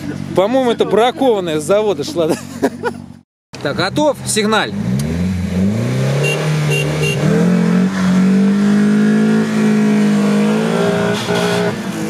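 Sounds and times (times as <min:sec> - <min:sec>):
car engine revving hard: 0:04.3 - 0:12.0
short high beeps: 0:06.2 - 0:07.2.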